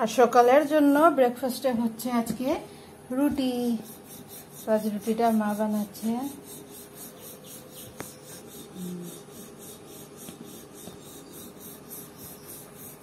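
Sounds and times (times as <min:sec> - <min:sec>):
rolling pin rubbing on dough: 0:03.2 - 0:13.0.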